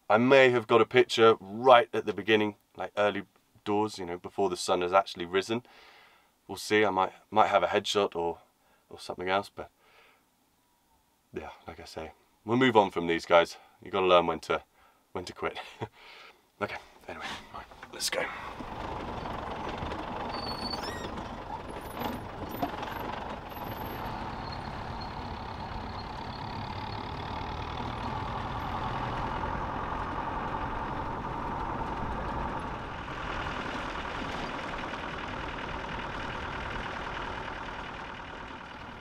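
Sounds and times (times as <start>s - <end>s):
vehicle engine drone: 17.6s - 39.0s.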